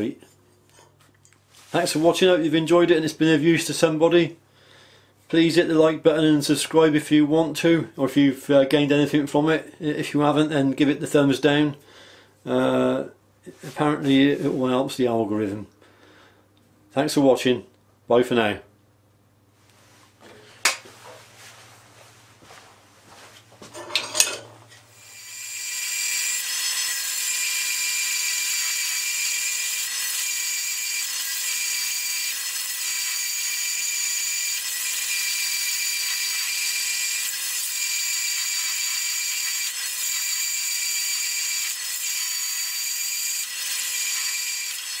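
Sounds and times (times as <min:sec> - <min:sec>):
band saw cutting steel: 0:24.9 - 0:45.0.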